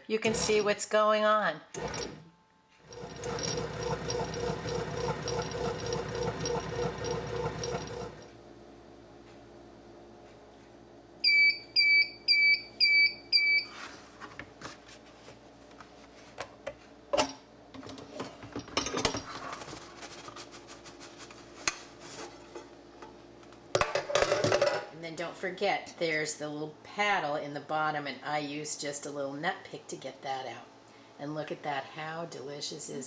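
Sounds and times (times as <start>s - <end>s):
bread machine beeping: 1.8s - 2.2s, 2.8s - 8.2s, 11.2s - 13.8s.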